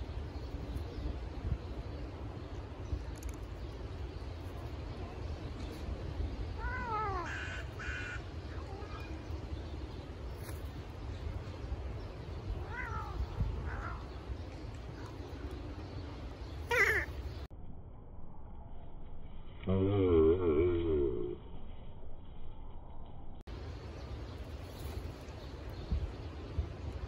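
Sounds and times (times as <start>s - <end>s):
cat yowling: 12.6s - 14.0s.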